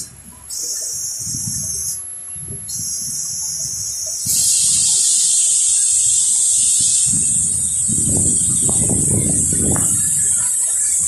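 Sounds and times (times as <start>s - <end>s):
high-pitched hiss: 0.0s - 11.0s
low rumbling: 7.0s - 11.0s.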